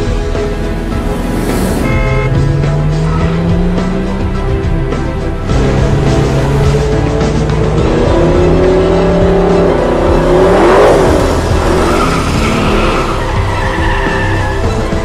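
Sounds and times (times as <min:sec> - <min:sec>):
racing car engines: 0:00.0 - 0:15.0
tyre squeal: 0:11.6 - 0:14.8.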